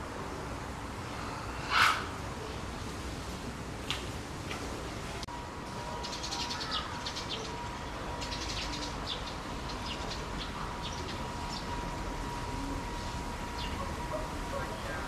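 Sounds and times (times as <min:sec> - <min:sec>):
faint steady tone: 0:05.1 - 0:15.0
small birds chirping: 0:05.8 - 0:15.0.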